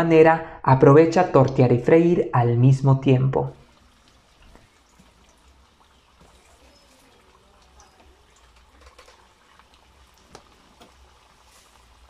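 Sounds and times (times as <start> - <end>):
fritter sizzling in hot oil: 3.5 - 12.0
oil popping: 3.5 - 12.0.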